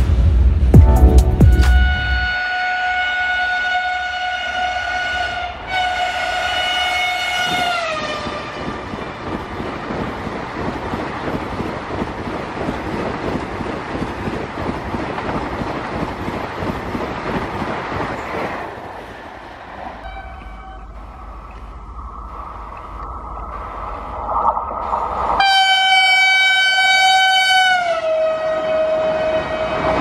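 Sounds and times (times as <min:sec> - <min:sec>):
train horn blasts: 0:01.1 - 0:08.6, 0:20.0 - 0:21.1, 0:25.4 - 0:30.0
train coaches rattling past: 0:04.5 - 0:30.0.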